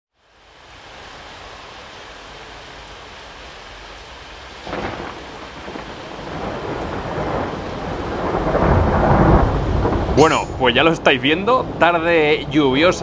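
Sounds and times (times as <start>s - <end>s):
steady rain: 0.1s - 13.0s
thunder rumbling: 4.6s - 13.0s.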